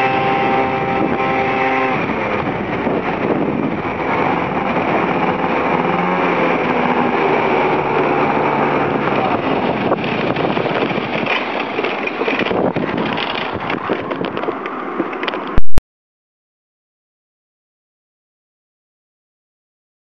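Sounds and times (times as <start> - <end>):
scooter engine running: 0.0 - 15.3
rough rattling engine noise: 0.0 - 15.6.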